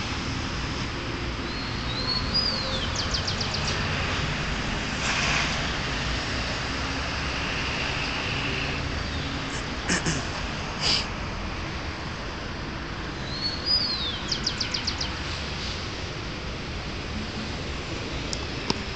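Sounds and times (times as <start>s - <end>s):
bird singing: 1.4s - 3.8s, 13.2s - 15.2s.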